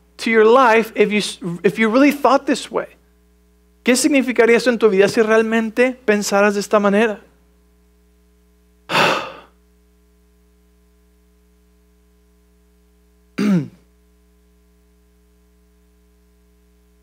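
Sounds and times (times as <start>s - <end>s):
steady low hum: 0.0s - 17.0s
man clearing his throat: 8.9s - 9.6s, 13.4s - 13.9s.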